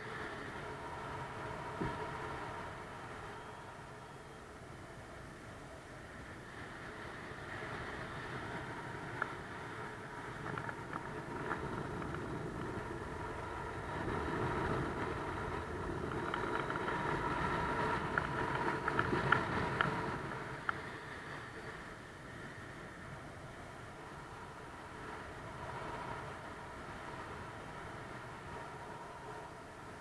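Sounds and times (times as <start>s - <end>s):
faint high steady tone: 0.0s - 10.5s
wind rushing over microphone: 0.0s - 30.0s.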